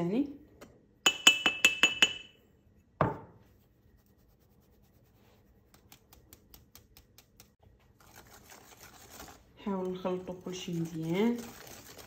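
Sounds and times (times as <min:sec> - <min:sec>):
sieve tapping over glass bowl: 0:01.1 - 0:02.3.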